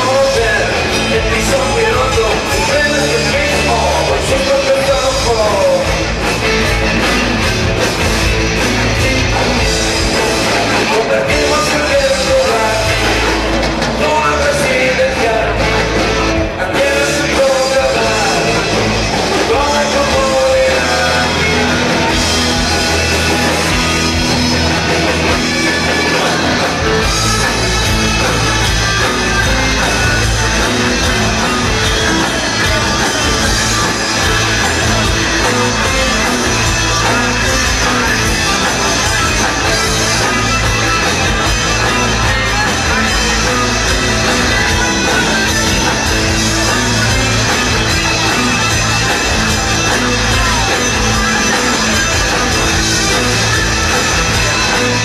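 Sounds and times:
person singing: 0.0s - 6.1s, 8.6s - 24.0s
live rock band playing: 0.0s - 55.0s.

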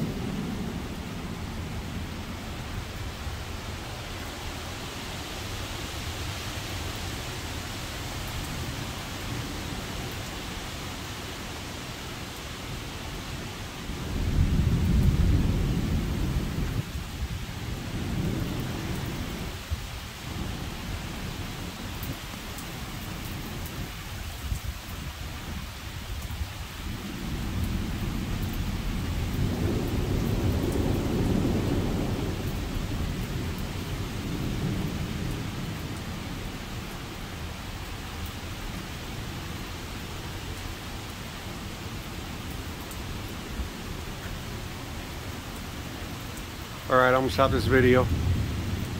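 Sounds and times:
heavy rain falling: 0.0s - 48.9s
wind gusting: 46.5s - 48.9s.

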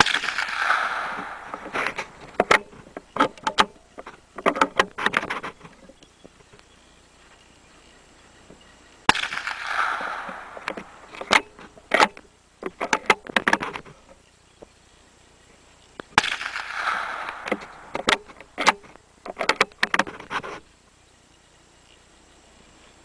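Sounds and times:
rifle shots with echo: 0.0s - 1.7s, 9.1s - 11.1s, 16.2s - 17.9s.

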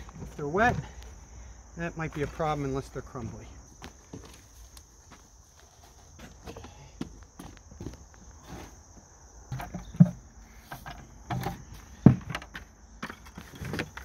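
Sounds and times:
sharp knocks on plastic buckets: 0.0s - 1.2s, 9.5s - 14.0s
plastic buckets rustling and knocking: 0.0s - 1.3s, 2.0s - 4.8s, 5.5s - 14.0s.

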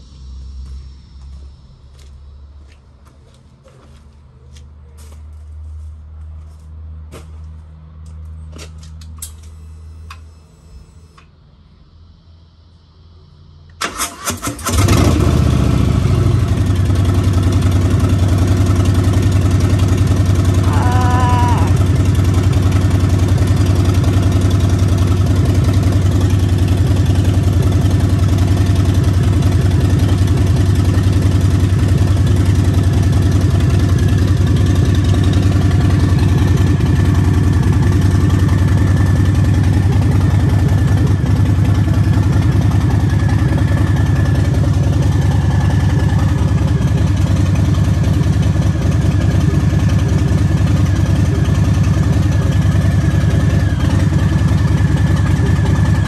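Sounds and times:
motorcycle engine idling: 13.7s - 56.0s.

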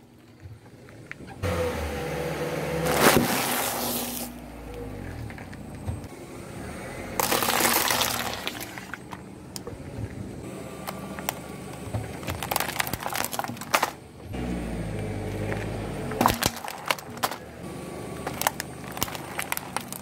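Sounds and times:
dense crunching: 2.8s - 6.1s, 7.1s - 20.0s
low engine rumble: 4.1s - 20.0s
plastic cracking and clicking: 10.8s - 14.0s, 16.2s - 17.5s, 18.2s - 20.0s.

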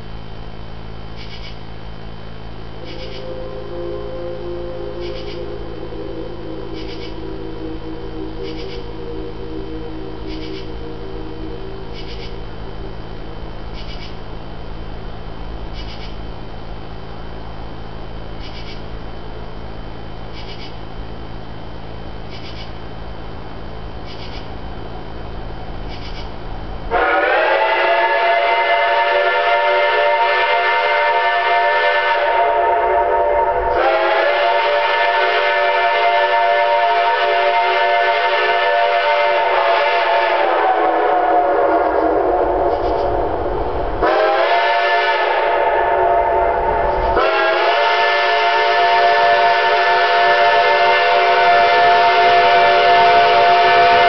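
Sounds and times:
low steady rumble: 0.0s - 54.0s
steam locomotive whistle blasts: 2.7s - 12.9s, 26.9s - 54.0s.

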